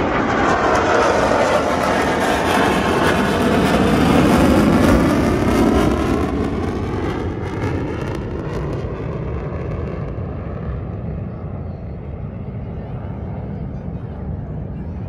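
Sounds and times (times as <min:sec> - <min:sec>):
fighter jets roaring past: 0:00.0 - 0:15.0.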